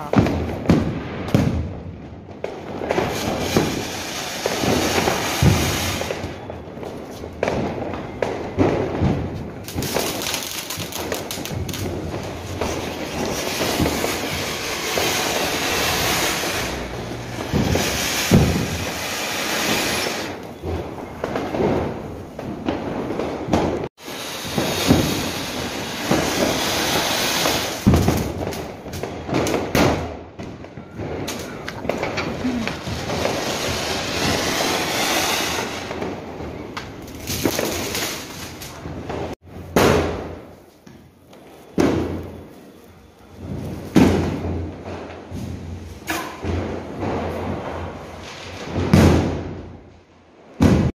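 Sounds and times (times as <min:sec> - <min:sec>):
firework fountain hissing: 0:03.0 - 0:06.4, 0:09.3 - 0:20.6, 0:24.0 - 0:28.8, 0:31.3 - 0:38.7.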